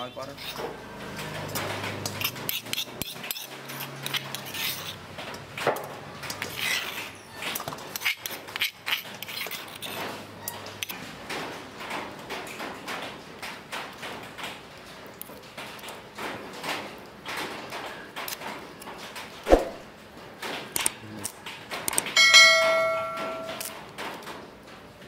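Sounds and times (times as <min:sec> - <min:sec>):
metal spoon scraping and tapping: 0:00.3 - 0:05.0, 0:06.3 - 0:10.1, 0:22.2 - 0:23.8.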